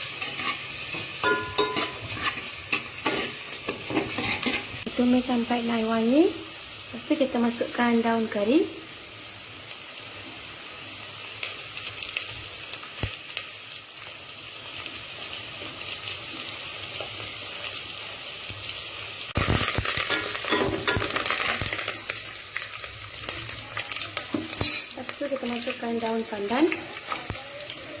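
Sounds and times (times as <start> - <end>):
onions sizzling in oil: 0.0 - 28.0
metal ladle scraping pot: 0.2 - 4.8.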